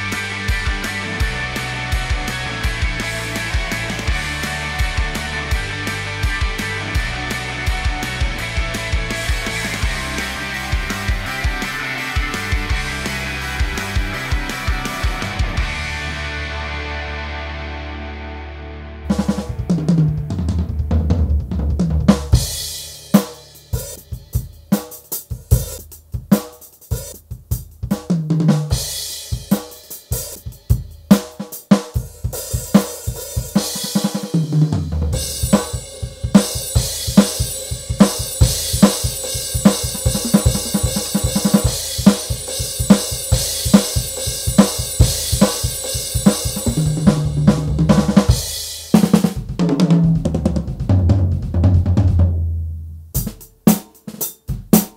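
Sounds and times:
electronic drum kit: 0.0s - 16.7s, 19.0s - 54.9s
cymbal: 35.2s - 48.9s.

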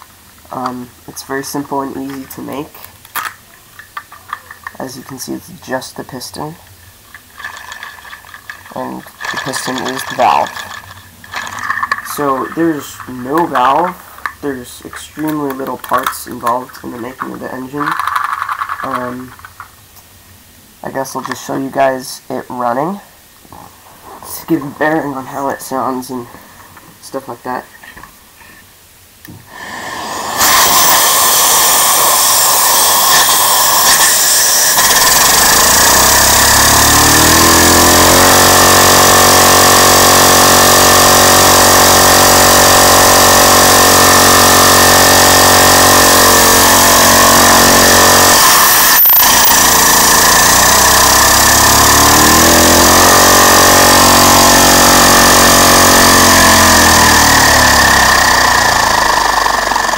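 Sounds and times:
small engine running: 7.4s - 13.9s, 29.5s - 59.9s
vacuum cleaner air rushing: 29.4s - 59.9s.

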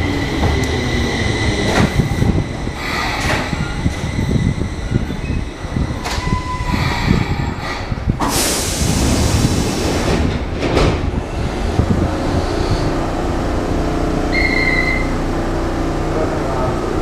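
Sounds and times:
air hiss bursts: 8.2s - 10.2s
short beep: 14.3s - 15.2s.

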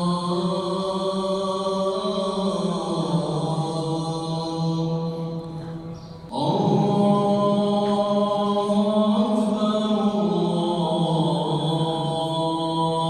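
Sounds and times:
man chanting held notes: 4.9s - 10.8s.

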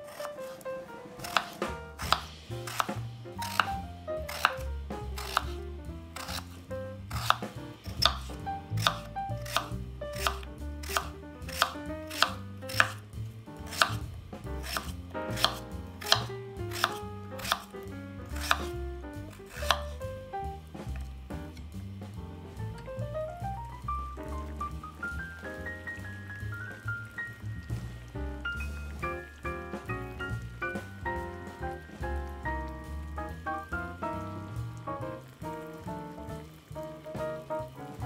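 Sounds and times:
soft background music: 0.0s - 38.0s
knife cutting on cutting board: 0.1s - 13.0s, 13.6s - 17.7s, 18.3s - 20.0s.

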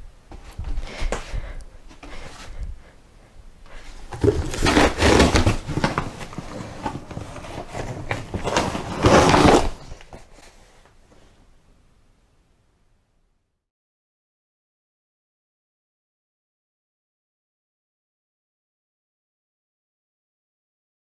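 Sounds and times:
light knocks and shuffles: 0.3s - 2.9s
cardboard box crunching: 4.1s - 10.2s.

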